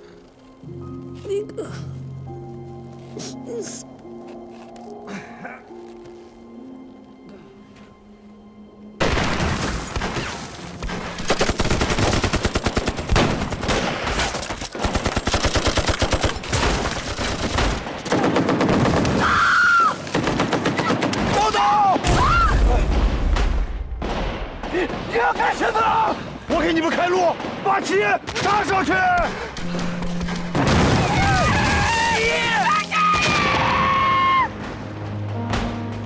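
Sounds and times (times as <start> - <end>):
rapid machine-gun and rifle fire: 11.2 - 19.3, 20.1 - 21.4
people shouting: 24.8 - 26.3, 31.0 - 34.5.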